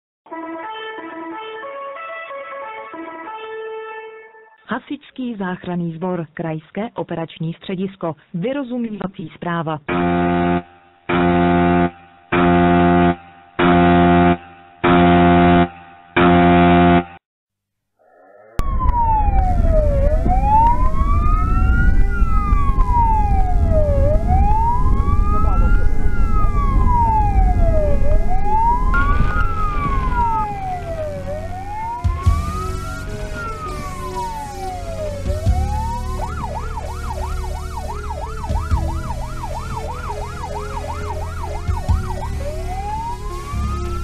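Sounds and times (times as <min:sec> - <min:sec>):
fire engine siren wailing: 0:00.3 - 0:04.2, 0:09.9 - 0:15.7, 0:18.6 - 0:44.0
engine and road noise: 0:18.6 - 0:44.0.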